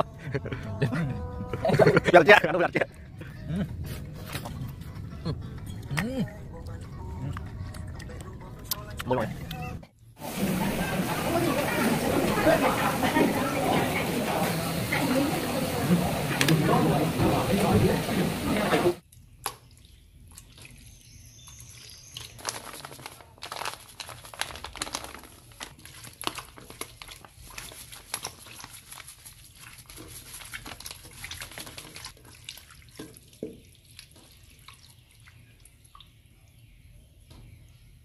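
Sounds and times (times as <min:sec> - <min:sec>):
wet squishing of squid: 0:19.2 - 0:36.3.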